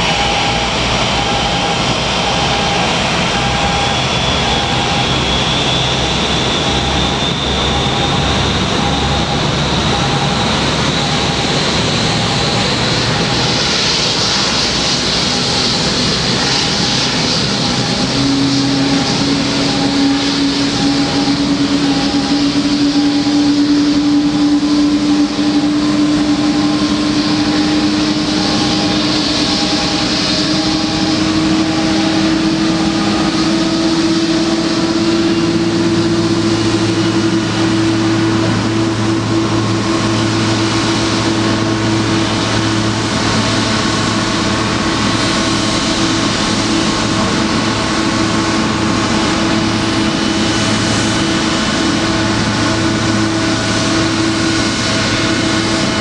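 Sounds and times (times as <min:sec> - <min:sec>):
deep drone: 0:00.0 - 0:56.0
jet engines whining: 0:00.0 - 0:56.0.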